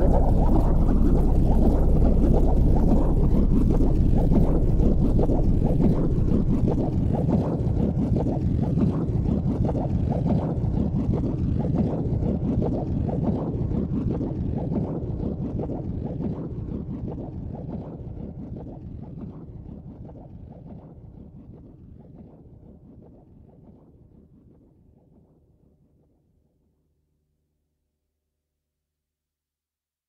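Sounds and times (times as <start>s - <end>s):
wind noise on microphone: 0.0s - 18.7s.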